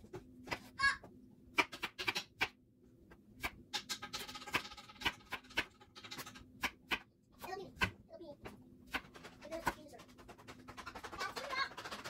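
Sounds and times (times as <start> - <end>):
knife chopping on wooden board: 3.4 - 7.1, 7.7 - 12.0.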